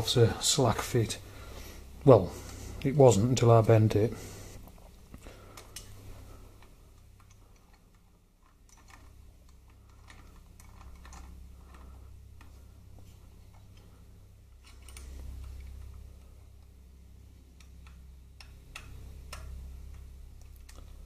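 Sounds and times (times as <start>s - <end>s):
low steady hum: 0.0s - 21.0s
small metallic clicks and taps: 17.5s - 21.0s.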